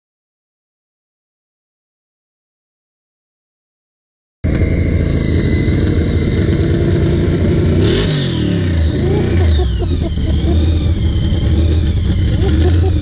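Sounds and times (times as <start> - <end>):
vehicle engine whining: 4.4 - 13.0.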